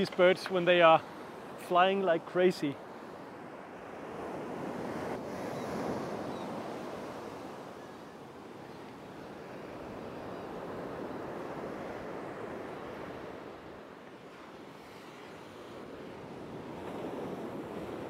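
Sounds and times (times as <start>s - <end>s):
waves washing onto sand: 0.0s - 18.0s.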